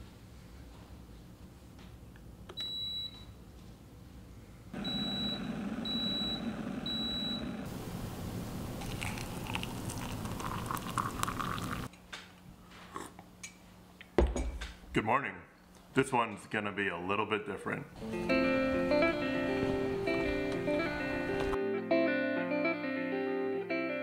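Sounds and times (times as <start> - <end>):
electric kettle beeping: 4.8 - 11.9
hot water pouring into a mug: 8.6 - 11.9.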